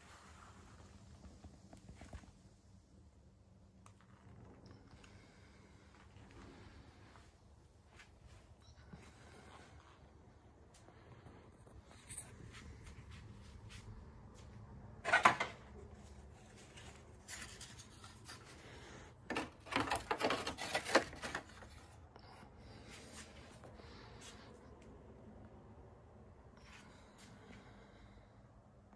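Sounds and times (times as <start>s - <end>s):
plastic wrap rustling: 15.9s - 22.0s.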